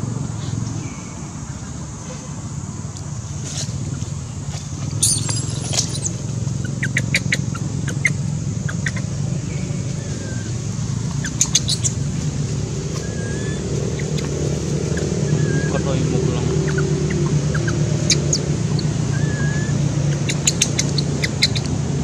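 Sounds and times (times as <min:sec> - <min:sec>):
faint high squeaks: 0:05.0 - 0:06.2.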